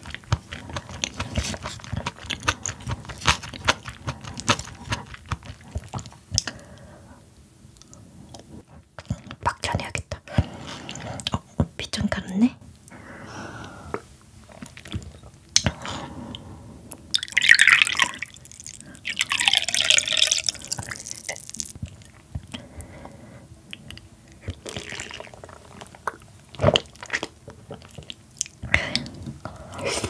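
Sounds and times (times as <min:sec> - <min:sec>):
wet watery sounds: 0:17.2 - 0:21.8.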